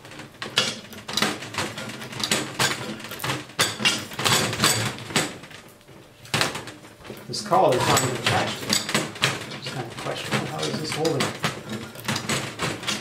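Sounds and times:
metal tools clattering on workbench: 0:00.4 - 0:05.3, 0:07.5 - 0:13.0.

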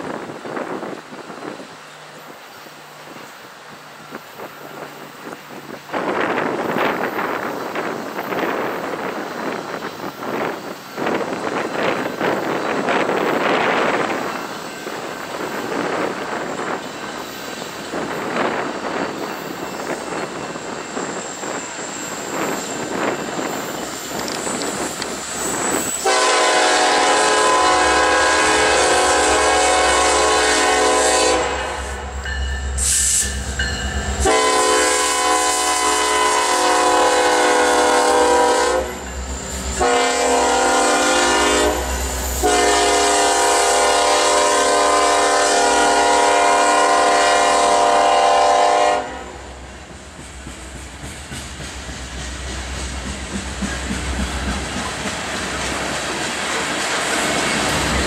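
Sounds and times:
locomotive air horn blasts: 0:26.0 - 0:32.1, 0:34.2 - 0:39.1, 0:39.7 - 0:49.6.

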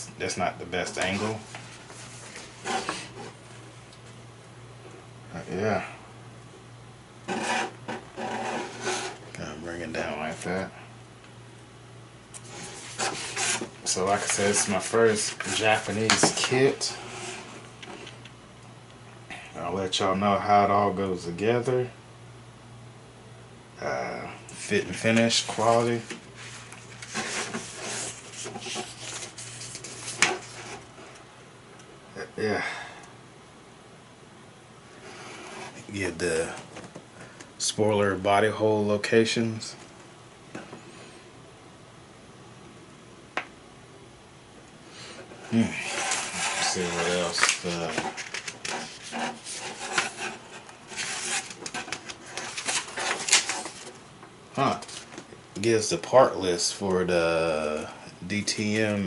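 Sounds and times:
steady low hum: 0:00.0 - 0:59.0
paper pages rustling: 0:12.4 - 0:18.1, 0:24.6 - 0:31.1, 0:45.5 - 0:54.0, 0:54.6 - 0:55.3.

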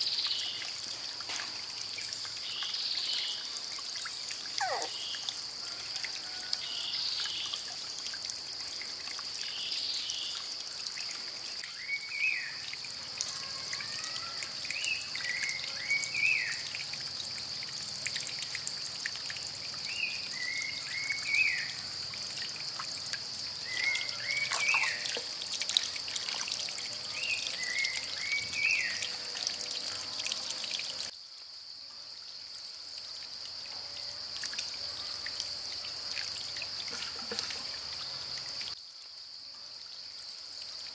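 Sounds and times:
water trickling: 0:00.0 - 0:40.9
bird whistling call: 0:04.6 - 0:05.0.

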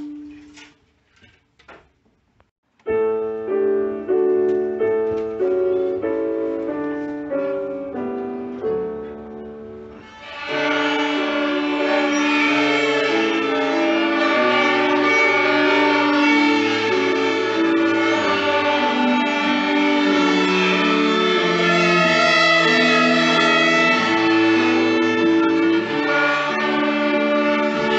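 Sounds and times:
piano notes: 0:00.0 - 0:00.8, 0:02.7 - 0:27.9
children's violins bowing melody: 0:09.8 - 0:27.9.

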